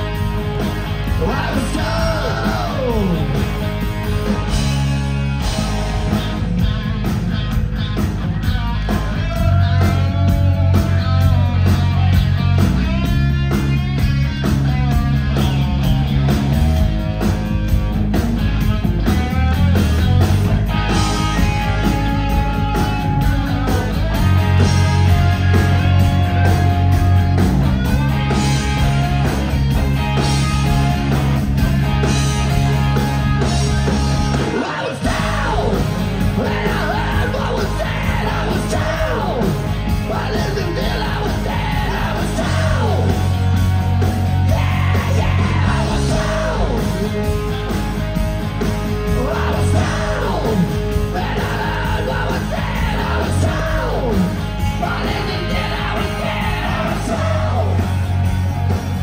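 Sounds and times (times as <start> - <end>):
hard rock band playing: 0.0 - 59.0
man singing and yelling: 1.1 - 3.6, 8.4 - 12.2, 34.2 - 43.4, 44.4 - 47.7, 49.0 - 58.0.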